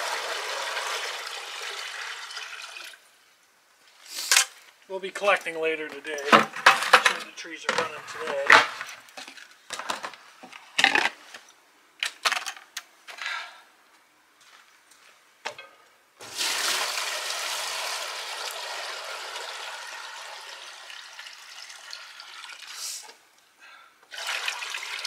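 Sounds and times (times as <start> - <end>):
sap pouring into a pan: 0.0 - 3.0, 16.2 - 23.0, 24.1 - 25.0.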